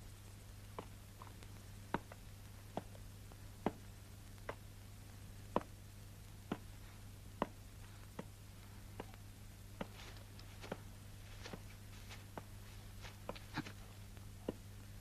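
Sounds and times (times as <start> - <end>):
steady low hum: 0.0 - 15.0
footsteps clicking: 9.8 - 14.6.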